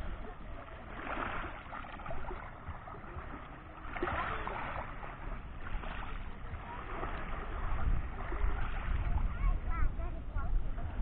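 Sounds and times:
waves washing over pebbles: 0.0s - 9.3s.

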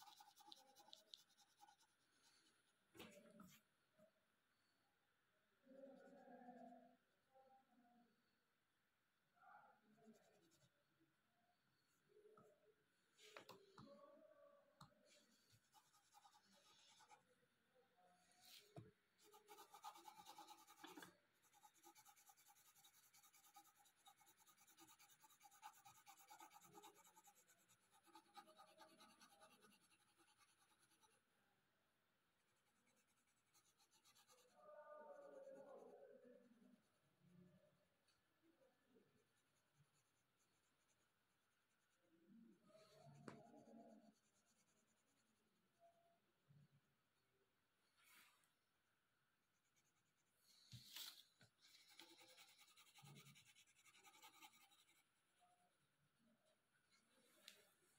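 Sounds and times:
pencil scratching on paper: 0.0s - 2.3s, 15.1s - 17.3s, 18.4s - 31.2s, 32.6s - 34.6s, 49.6s - 55.2s.

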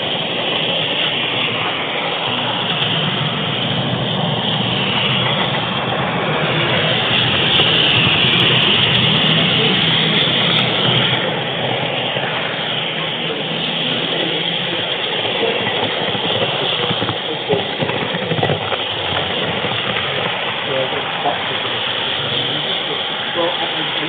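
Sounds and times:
model locomotive motor: 0.0s - 24.0s
model train wheels on track: 0.0s - 24.0s.

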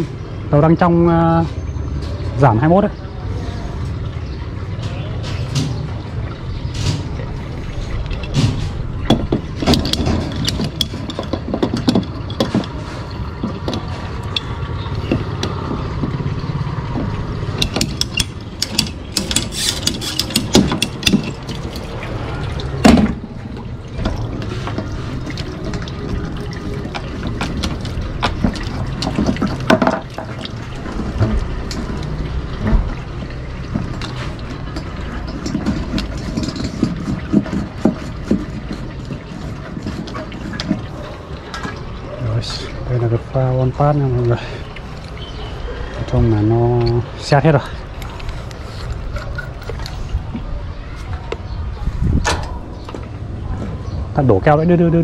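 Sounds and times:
hand tools clicking on plastic pipes: 8.0s - 23.1s, 24.0s - 41.9s.

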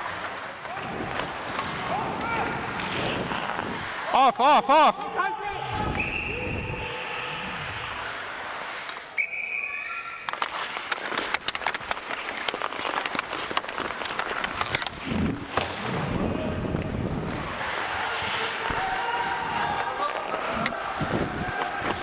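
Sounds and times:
skate blades scraping on ice: 0.0s - 4.8s, 7.0s - 22.0s
hockey stick clicking on puck: 1.1s - 3.8s, 10.2s - 15.8s, 16.7s - 22.0s.

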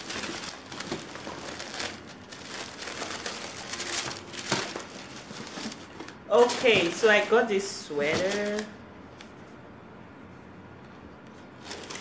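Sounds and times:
paper wrapping crinkling: 0.0s - 7.4s, 11.6s - 12.0s.

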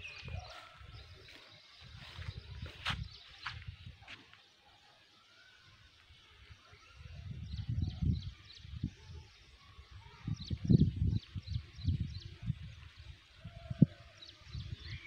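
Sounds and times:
wind gusting on microphone: 1.8s - 4.0s, 7.0s - 15.0s.

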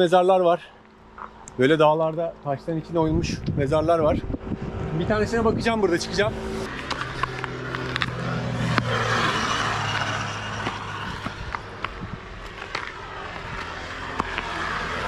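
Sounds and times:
vehicle engine hum: 0.8s - 15.0s.

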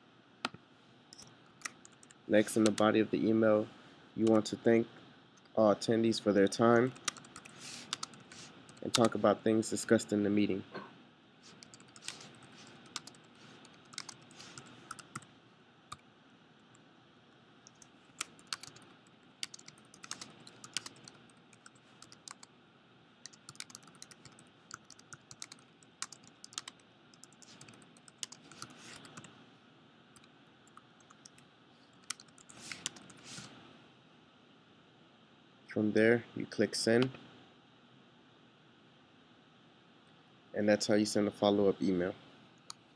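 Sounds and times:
faint keyboard typing: 0.4s - 2.9s, 4.2s - 4.5s, 6.5s - 9.2s, 11.5s - 15.3s, 17.6s - 22.5s, 23.2s - 29.4s, 30.2s - 33.5s.

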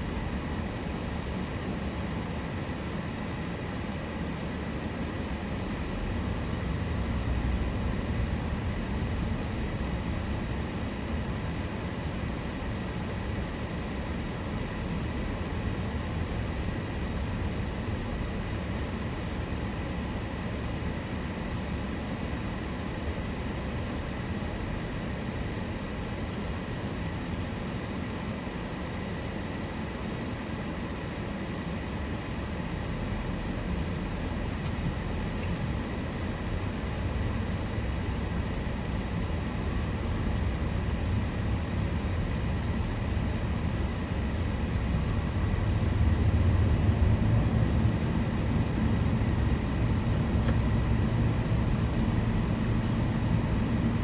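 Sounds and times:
car engine and tyre rumble: 32.2s - 54.0s.

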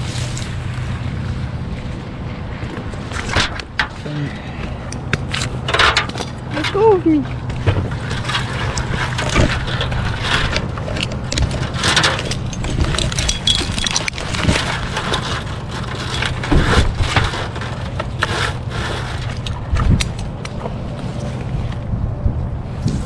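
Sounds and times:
steady low hum: 0.0s - 23.0s
wood knocking and snapping: 7.3s - 20.8s.

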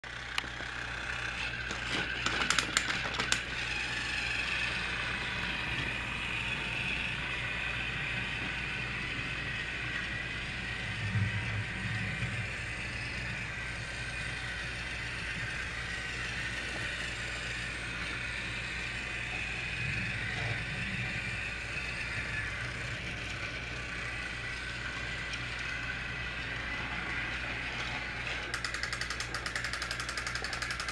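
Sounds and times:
toy train motor whirring: 0.1s - 30.9s
rapid even clicking: 28.5s - 30.9s.

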